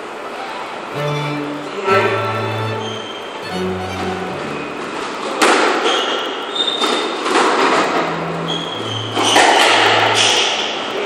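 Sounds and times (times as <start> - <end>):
shoes squeaking on wooden floor: 7.9 - 10.4.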